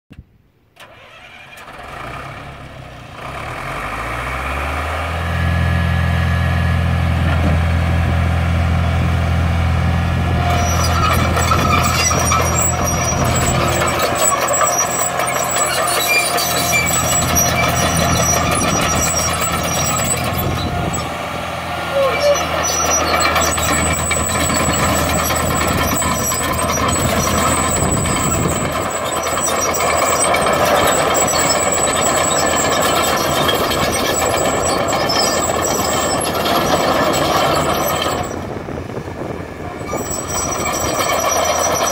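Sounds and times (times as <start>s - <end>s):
diesel engine running: 0.8s - 41.9s
high squeals: 10.4s - 38.6s, 39.2s - 41.9s.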